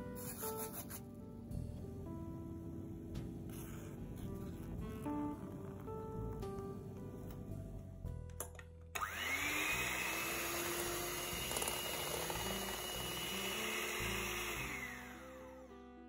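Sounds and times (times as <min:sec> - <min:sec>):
electric hand mixer whining: 0:09.0 - 0:15.7.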